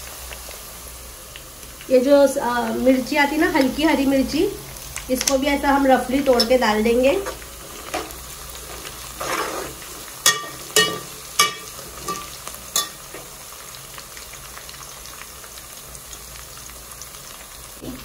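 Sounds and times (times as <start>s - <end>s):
onions frying in hot oil: 0.0s - 18.0s
spoon knocking against pot: 10.2s - 13.0s.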